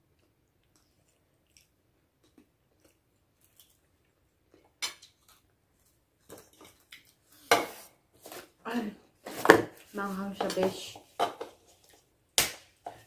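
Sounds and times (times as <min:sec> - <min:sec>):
faint chewing: 0:00.0 - 0:07.5.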